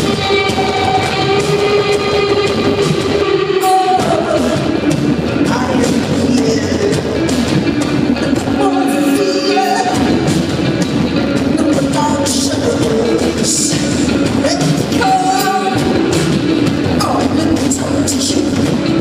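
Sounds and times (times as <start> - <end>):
bass guitar: 0.0 - 19.0
drums: 0.0 - 19.0
electric guitar: 0.0 - 19.0
woman singing: 3.6 - 4.7.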